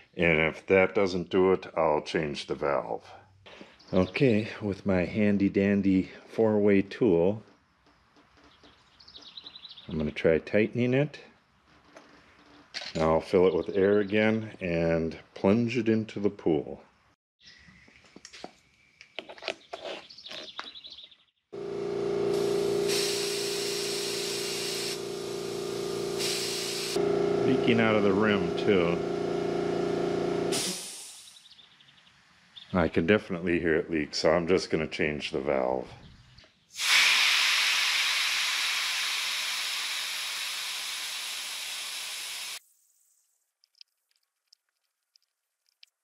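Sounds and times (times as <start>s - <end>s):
air compressor humming: 21.6s - 31.4s, 36.8s - 42.6s
compressed air hissing: 22.3s - 27.0s, 30.4s - 31.4s, 36.8s - 42.6s.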